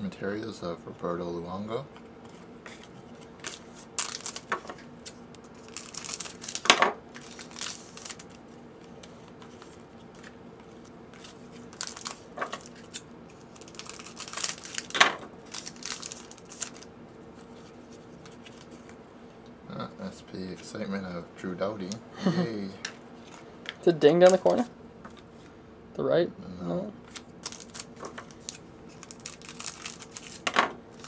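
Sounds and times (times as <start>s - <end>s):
foil wrappers crinkling and tearing: 3.4s - 16.9s, 27.1s - 31.0s.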